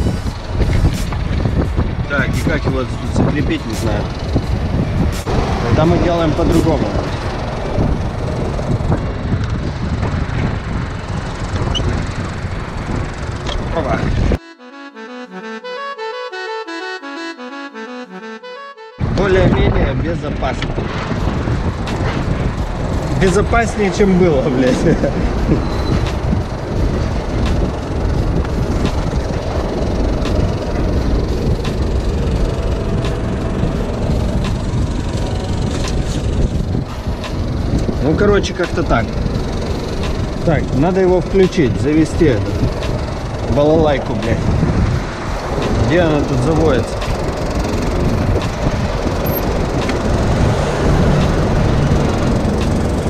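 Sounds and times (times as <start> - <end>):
diesel truck engine idling: 22.4 - 53.0.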